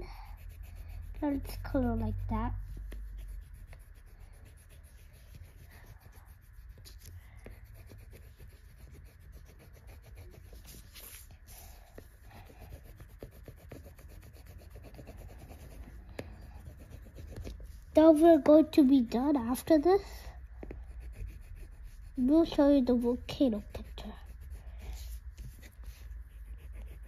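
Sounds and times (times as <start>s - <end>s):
pencil scribbling on paper: 0.0s - 18.5s, 20.6s - 27.0s.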